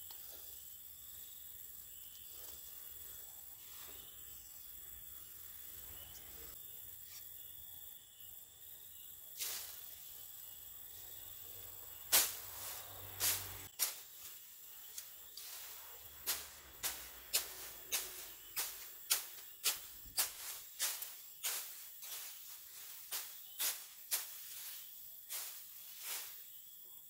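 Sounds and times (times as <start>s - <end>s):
high insect drone: 0.0s - 27.0s
grass swishing rip: 9.4s - 10.2s, 11.0s - 26.6s.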